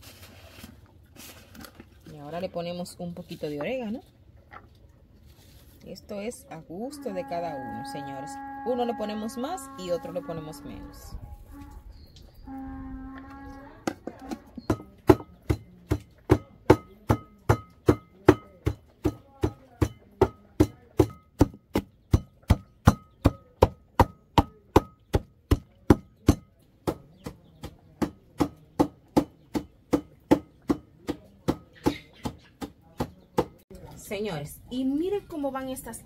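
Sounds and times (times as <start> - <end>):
pestle pounding in mortar: 13.9 - 33.6.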